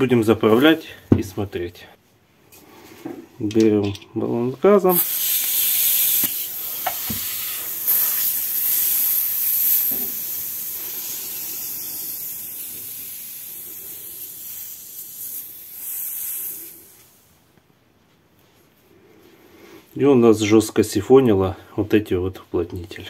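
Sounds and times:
gas hissing: 4.8s - 17.4s.

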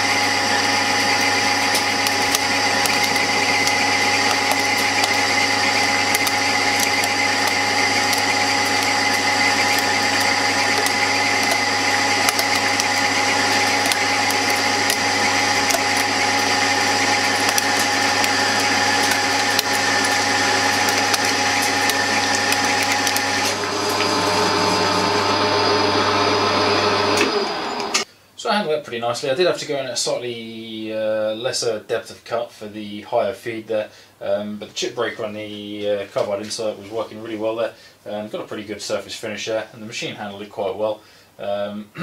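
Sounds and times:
lathe gear whine and motor hum: 0.0s - 28.1s.

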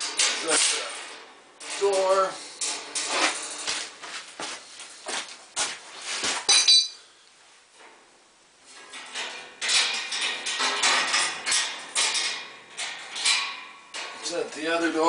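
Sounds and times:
wire cage rattling: 0.0s - 4.0s, 8.7s - 15.0s
metal clanks and clink: 6.4s - 7.0s, 8.7s - 14.4s.

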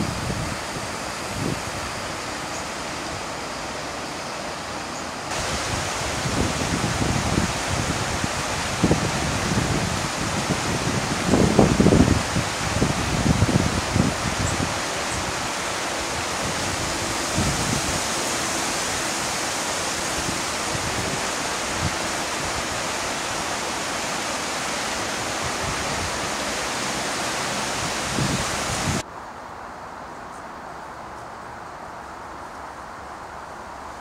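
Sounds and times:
river rushing over stones: 0.0s - 29.0s.

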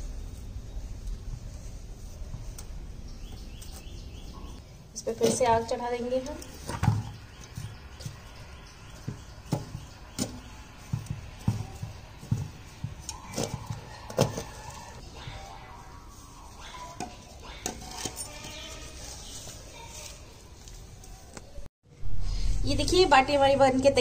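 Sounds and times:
metal tongs scraping metal pan: 16.7s - 19.6s.

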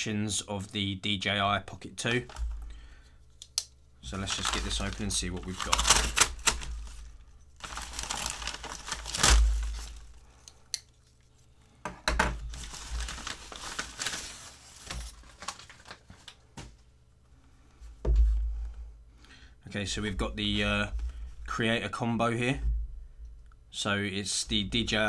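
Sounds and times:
paper envelope tearing and crinkling: 4.0s - 10.2s, 12.5s - 16.4s.

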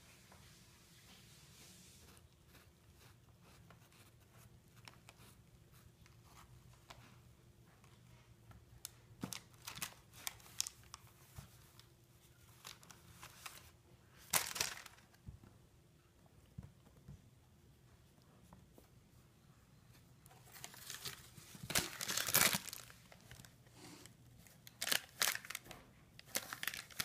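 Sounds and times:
crinkly toys rustling: 9.2s - 15.2s, 20.3s - 27.0s.

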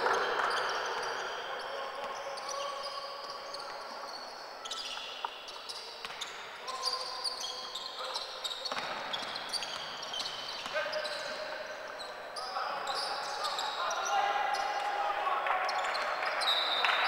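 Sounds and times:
loud hall noise: 0.0s - 17.0s
sneakers squeaking: 0.0s - 17.0s.

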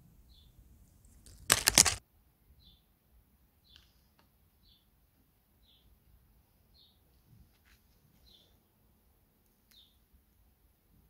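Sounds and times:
small bird chirping: 0.2s - 0.6s, 5.6s - 6.0s, 6.7s - 7.0s, 8.2s - 8.6s, 9.6s - 10.1s.

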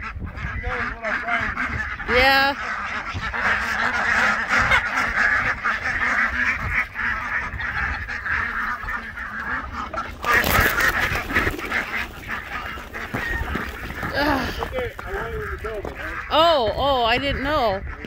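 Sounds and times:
ducks quacking: 0.0s - 18.0s
loud rustling: 9.7s - 16.3s.

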